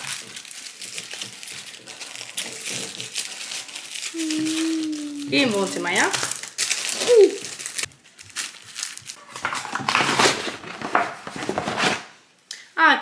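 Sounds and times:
packaging crinkling and rustling: 0.0s - 12.2s
brief falling vocal sound: 4.2s - 5.3s.

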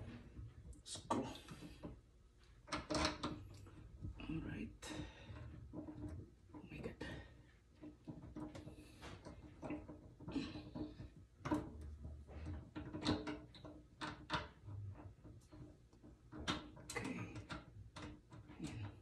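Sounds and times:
small fittings clicking and rattling: 7.7s - 19.0s.

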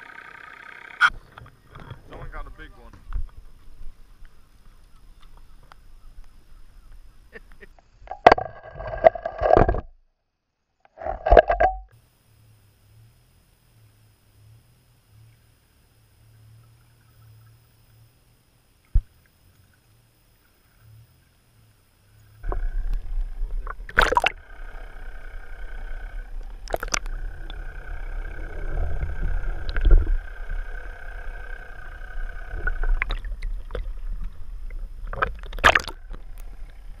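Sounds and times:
boat motor rumbling and whining: 0.0s - 7.3s, 22.2s - 37.0s.

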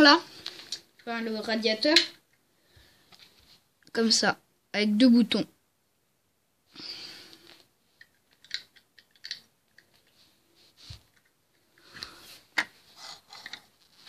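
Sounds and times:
plastic bricks clicking: 8.0s - 10.0s.

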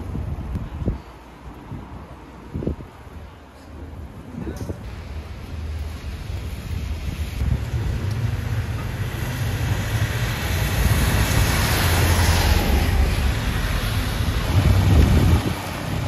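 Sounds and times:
wind rumble on microphone: 0.0s - 16.0s
bus tyre hiss on wet road: 4.8s - 16.0s.

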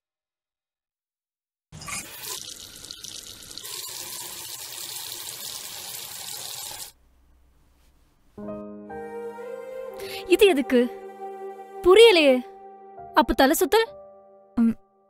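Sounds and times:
tap water running and splashing: 1.8s - 7.0s.

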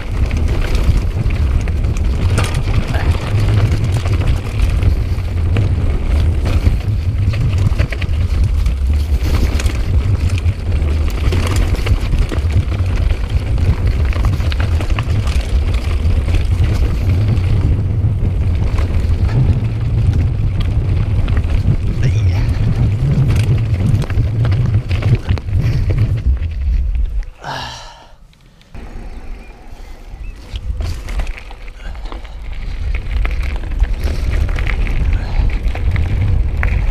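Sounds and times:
bike clicks and knocks: 0.0s - 21.9s, 22.6s - 27.3s, 30.3s - 36.9s
wind buffeting microphone: 0.0s - 27.7s, 28.7s - 36.9s
tyres crunching over stones: 30.2s - 36.9s.

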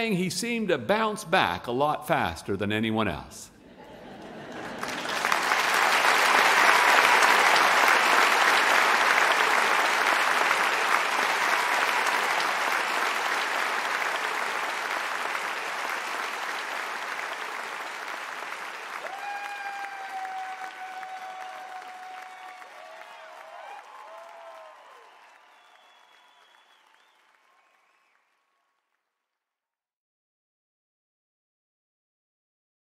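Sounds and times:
audience applauding: 3.9s - 28.5s.

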